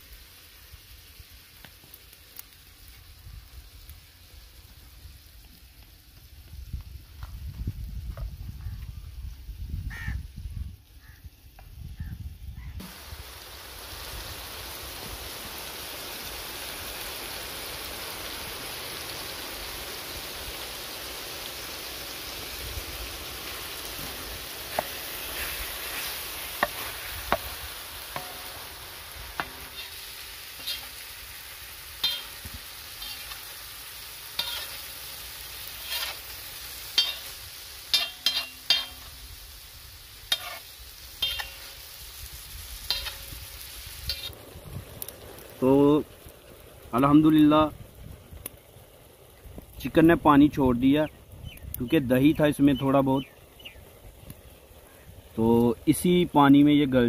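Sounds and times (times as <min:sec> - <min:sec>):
food sizzling in oil: 0:00.0 - 0:57.0
spatula tapping and scraping griddle: 0:24.0 - 0:28.6, 0:29.3 - 0:30.0, 0:30.6 - 0:31.0, 0:32.0 - 0:33.4, 0:34.3 - 0:34.9, 0:35.7 - 0:36.3, 0:36.9 - 0:37.3, 0:37.9 - 0:39.2, 0:40.3 - 0:41.7, 0:42.8 - 0:43.4.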